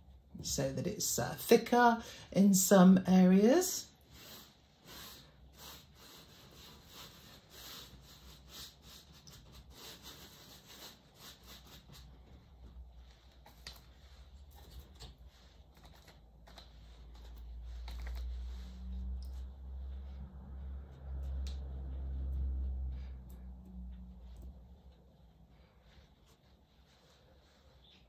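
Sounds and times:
low rumble: 18.7 - 25.3.

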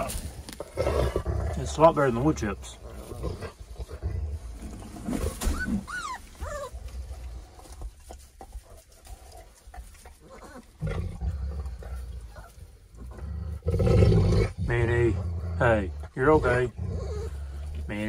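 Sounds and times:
dog growling low: 0.6 - 5.0, 10.4 - 18.0
puppies whimpering: 5.4 - 6.9, 16.4 - 17.6.

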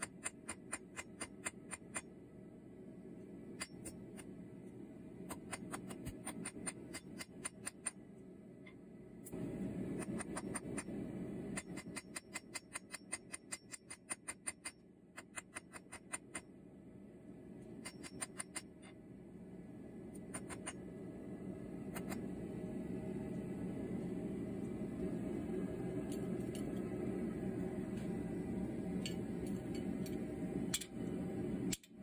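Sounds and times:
hammer tapping on anvil: 17.8 - 18.8.

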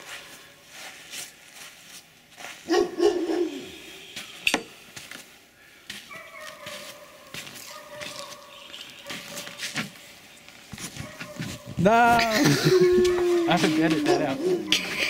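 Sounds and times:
dog barking: 2.7 - 3.8, 6.1 - 9.6, 10.9 - 11.7, 14.0 - 15.0.

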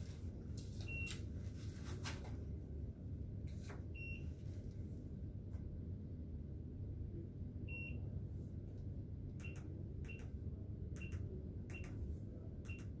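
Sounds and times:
steady low hum: 0.0 - 13.0
pin pad beeping: 9.4 - 10.4.

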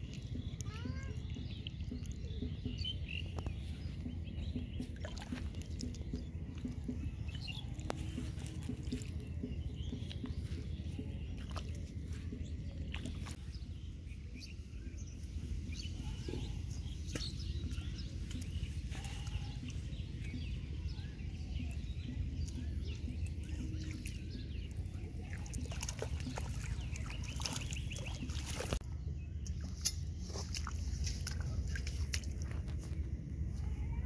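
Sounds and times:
steady low rumble: 0.0 - 34.0
hands splashing in water: 25.3 - 28.8.

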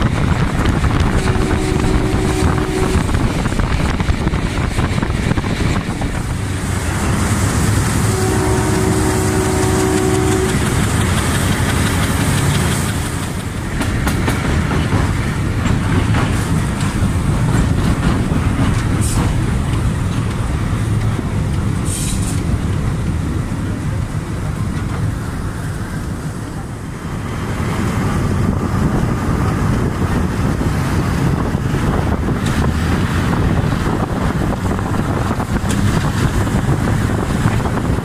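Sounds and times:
diesel locomotive engine rumble: 0.0 - 38.0
rushing air: 0.0 - 38.0
wheels clacking over rail joints: 0.0 - 38.0
train horn: 1.1 - 3.4, 7.4 - 11.2.

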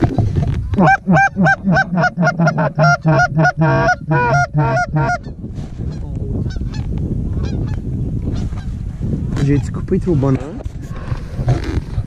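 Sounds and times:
goose call honks and clucks: 0.8 - 8.7.

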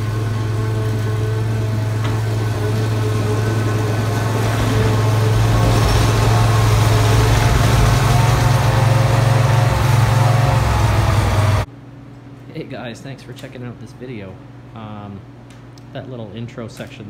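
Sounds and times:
engine idling: 0.0 - 11.7.

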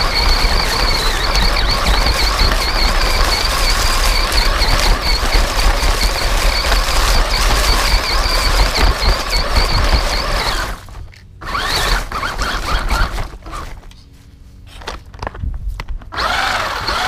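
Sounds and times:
toy truck motor whine: 0.0 - 13.8, 16.1 - 17.0
tyres rustling over leaves: 10.3 - 15.2.

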